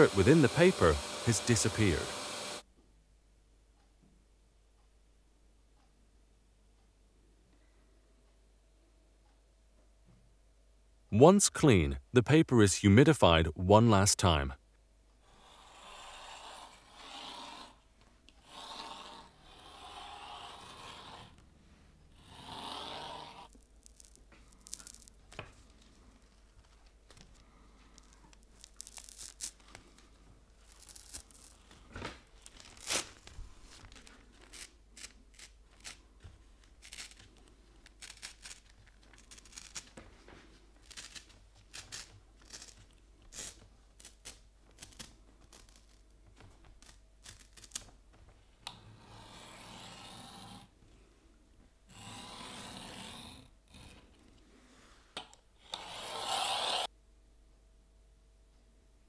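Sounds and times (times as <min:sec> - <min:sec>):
paper crinkling and rustling: 0:23.5 - 0:48.4.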